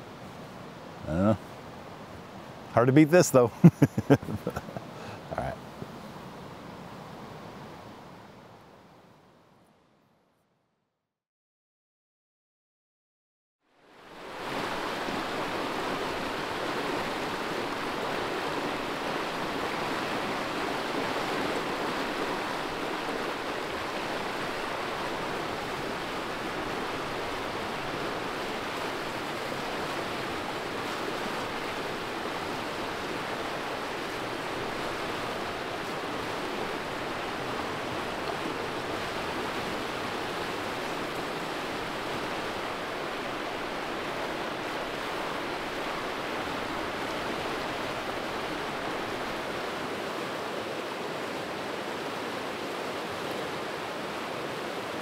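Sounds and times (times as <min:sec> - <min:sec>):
river water rushing: 0:00.0 - 0:08.9, 0:13.7 - 0:55.0.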